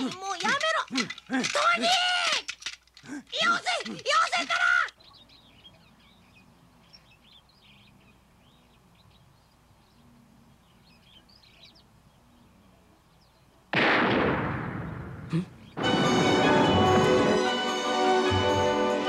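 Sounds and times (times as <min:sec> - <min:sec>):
faint birds chirping: 0:00.0 - 0:13.7, 0:14.9 - 0:15.8
loud gunshot: 0:13.8 - 0:16.4.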